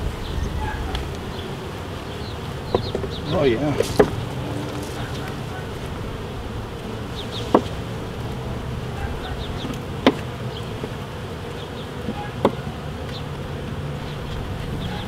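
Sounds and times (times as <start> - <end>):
bees buzzing: 0.0 - 15.0
hive tool clicking on wood: 2.4 - 5.5, 7.2 - 8.5, 9.6 - 14.4.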